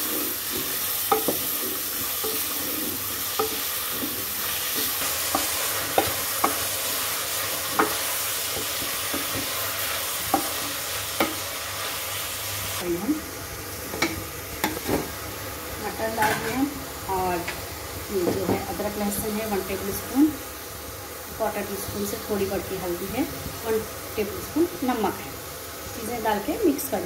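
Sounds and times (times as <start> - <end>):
onions sizzling in oil: 0.0 - 27.0
wooden spoon knocking on pot: 1.1 - 1.6, 3.3 - 4.2, 4.8 - 6.8, 7.7 - 9.5.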